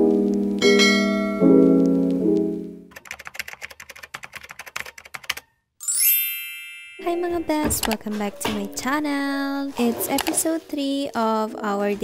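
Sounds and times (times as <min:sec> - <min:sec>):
piano chords: 0:00.0 - 0:02.9, 0:06.3 - 0:09.7
bright chime: 0:00.6 - 0:01.6, 0:05.8 - 0:07.6
keyboard typing clicks: 0:02.9 - 0:05.5, 0:07.5 - 0:08.2.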